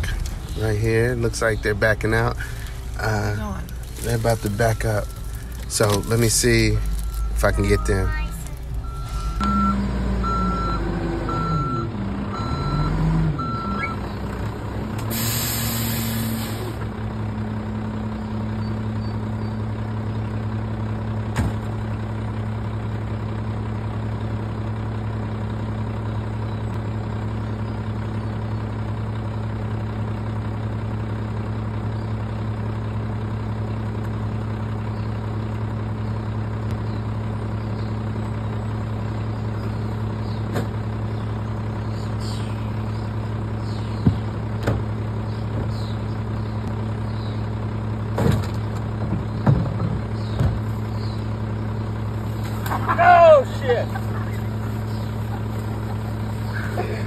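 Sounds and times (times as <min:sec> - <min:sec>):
truck engine idling: 0:00.0 - 0:57.0
truck backup beeper: 0:04.1 - 0:16.8
air brakes hissing: 0:15.0 - 0:16.8.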